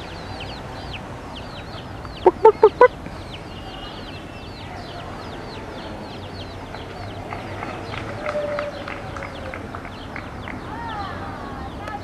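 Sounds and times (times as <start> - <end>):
small high chirps: 2.1 - 2.9
chicken clucking: 2.1 - 3.0.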